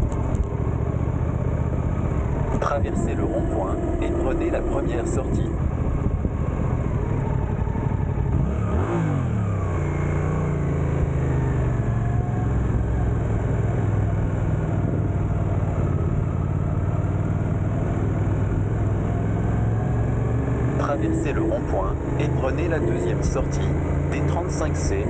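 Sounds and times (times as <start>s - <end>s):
motorcycle engine at low speed: 0.0s - 25.0s
wind noise: 2.1s - 9.7s, 12.3s - 16.3s.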